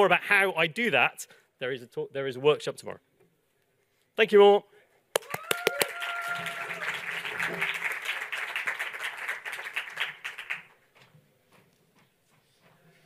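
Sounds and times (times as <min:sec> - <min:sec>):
audience applauding: 0:05.2 - 0:10.7.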